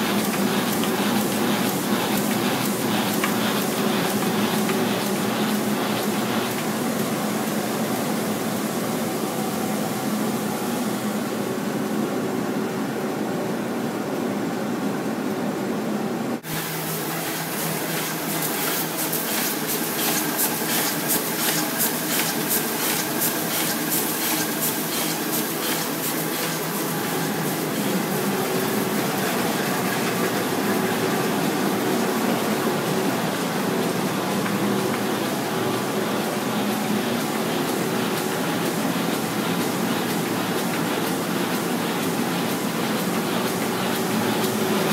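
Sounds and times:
fast regular machine clatter: 0.0s - 7.6s, 16.8s - 44.9s
printing press humming: 0.0s - 44.9s.

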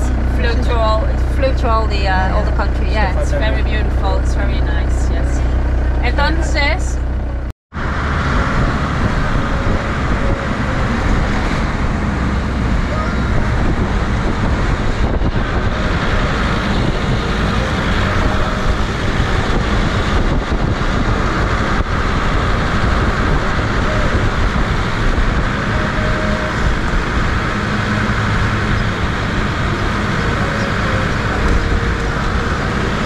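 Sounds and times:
vehicle engine: 0.0s - 33.0s
wind noise: 7.8s - 33.0s.

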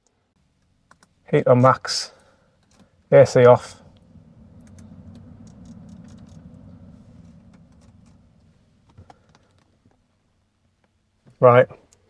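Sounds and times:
heater blower fan whirring: 1.4s - 10.8s.

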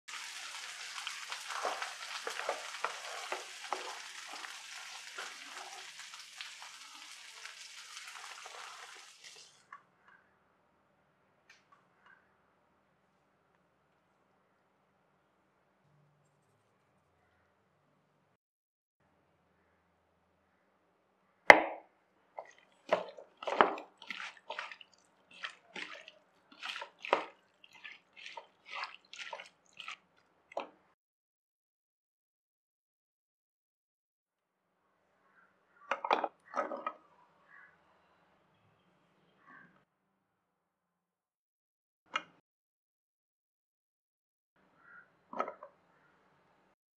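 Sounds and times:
curry sizzling in a pan: 0.1s - 9.7s
spatula scraping a pan: 0.2s - 6.1s
hand squelching prawns in bowl: 22.4s - 30.1s.

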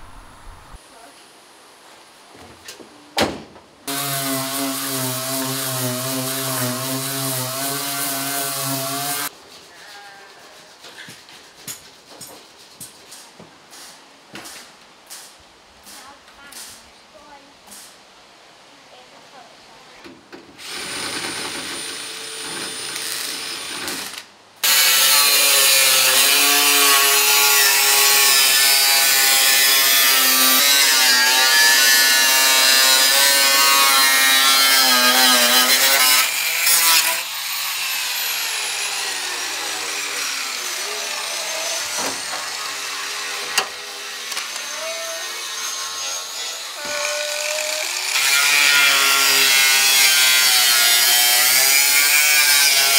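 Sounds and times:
angle grinder cutting metal: 3.9s - 9.3s, 20.6s - 52.9s.

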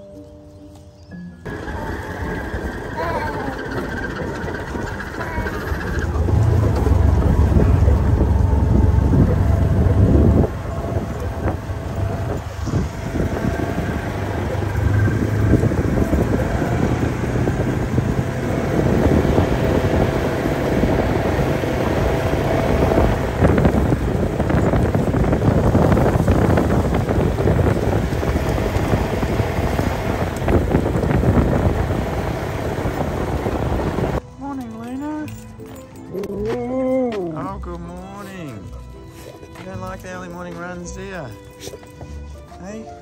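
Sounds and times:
utility vehicle engine running: 1.4s - 36.4s
wind buffeting microphone: 1.5s - 34.2s.

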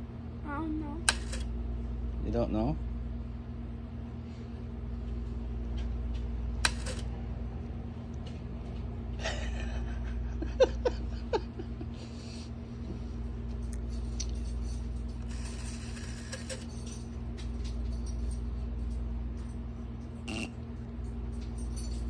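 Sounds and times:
rotary telephone dial clicking: 6.7s - 7.0s, 15.2s - 16.7s.

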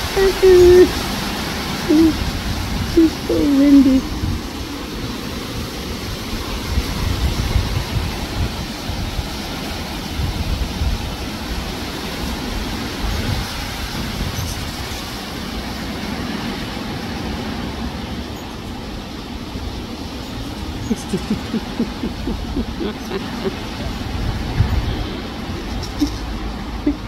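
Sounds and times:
wind buffeting microphone: 0.0s - 16.3s, 18.8s - 27.0s.

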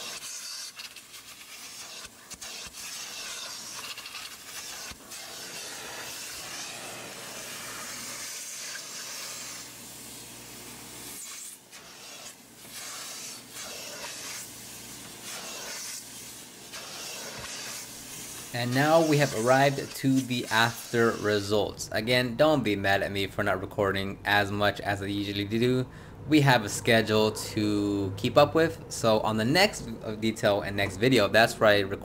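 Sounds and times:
hiss of spray and suction: 0.0s - 10.3s, 11.0s - 21.5s.

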